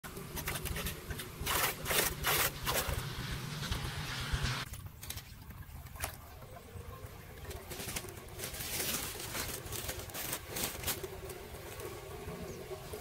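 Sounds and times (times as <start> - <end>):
floodwater splashing and sloshing: 4.6 - 13.0
debris raked from drain: 7.6 - 11.9.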